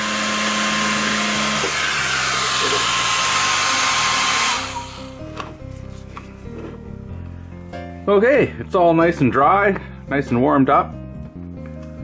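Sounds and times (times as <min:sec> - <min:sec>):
hair dryer blowing: 0:00.0 - 0:05.4.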